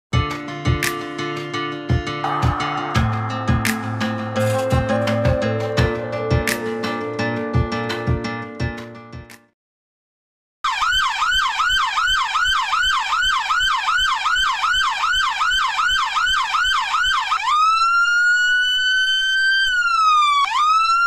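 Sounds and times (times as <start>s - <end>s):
electronic police siren: 10.6s - 21.0s.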